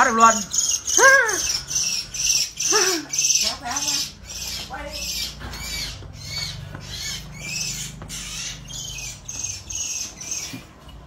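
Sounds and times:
small animal distress squeals: 0.0 - 10.9.

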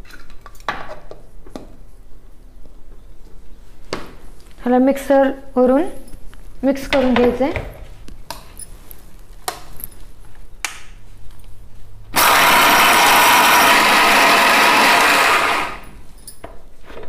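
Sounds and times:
mixer grinder running: 12.1 - 16.0.

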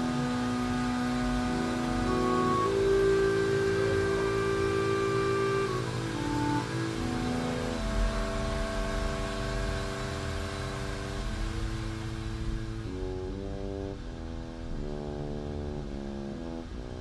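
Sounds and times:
waterfall rushing: 0.0 - 12.9
slow held chords music: 0.0 - 17.0.

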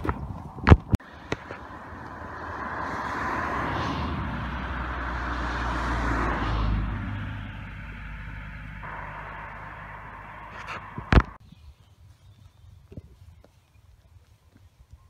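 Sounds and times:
car passing: 1.0 - 11.4.

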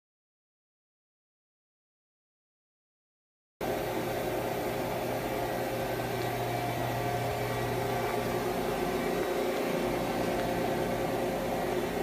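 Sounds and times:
shop machinery humming: 3.6 - 12.0.

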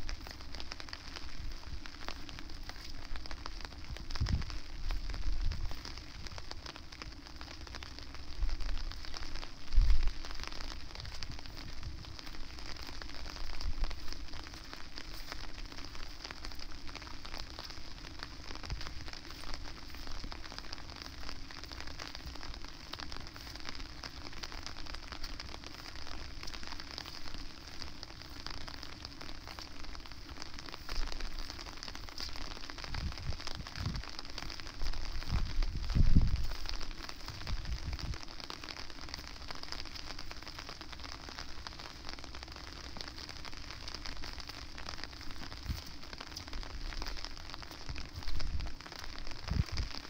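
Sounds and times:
wind rumbling on microphone: 0.0 - 42.1, 42.9 - 50.0
steady rain falling: 0.0 - 50.0.

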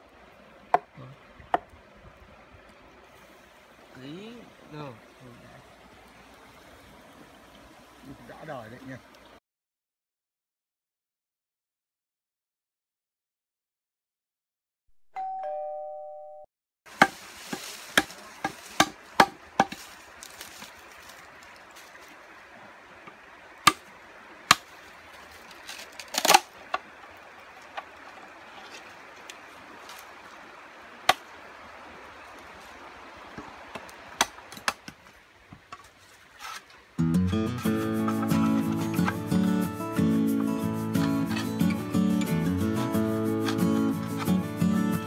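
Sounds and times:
steady outdoor hiss: 0.0 - 9.4, 16.9 - 45.0
knocks of wood and bamboo: 0.7 - 1.7, 16.9 - 20.8, 23.0 - 23.9, 24.5 - 24.8, 25.6 - 26.9, 31.1 - 31.3, 33.3 - 36.8.

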